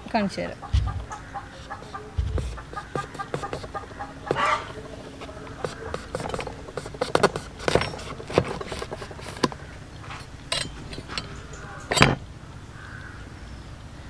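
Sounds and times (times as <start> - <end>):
cleaver knocking on cutting board: 0.7 - 6.4.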